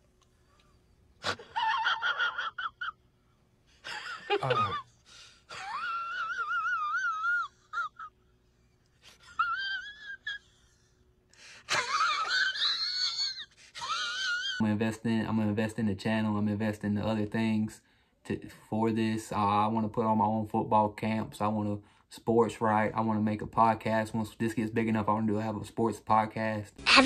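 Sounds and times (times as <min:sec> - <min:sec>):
person wailing: 0:04.3 - 0:04.8.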